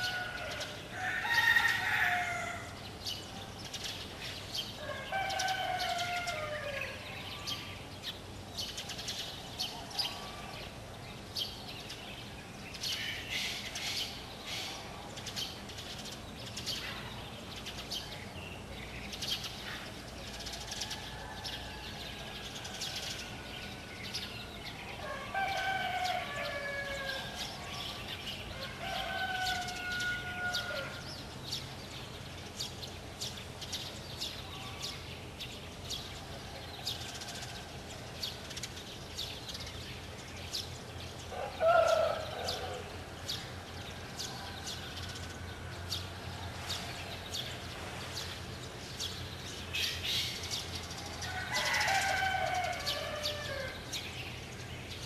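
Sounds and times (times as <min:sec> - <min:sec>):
rooster crowing: 0:00.0 - 0:02.8, 0:04.8 - 0:07.0, 0:25.0 - 0:27.5, 0:28.5 - 0:31.0, 0:41.3 - 0:42.9, 0:51.2 - 0:54.0
small birds chirping: 0:00.0 - 0:55.0.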